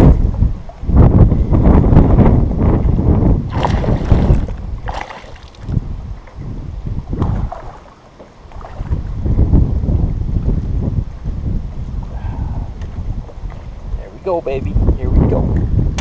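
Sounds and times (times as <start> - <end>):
wind buffeting microphone: 0.0 - 16.0
fish splashing at surface: 3.5 - 5.8.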